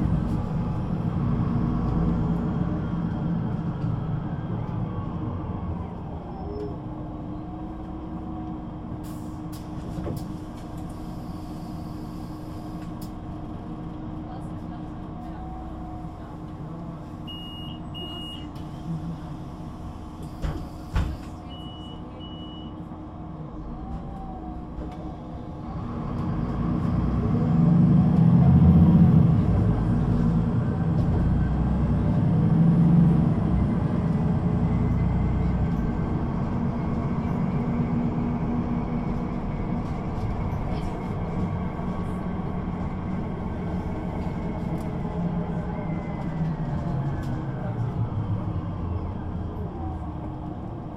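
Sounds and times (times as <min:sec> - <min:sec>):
bus diesel engine: 0:00.0 - 0:50.9
short beeps: 0:17.3 - 0:18.5, 0:21.5 - 0:22.8.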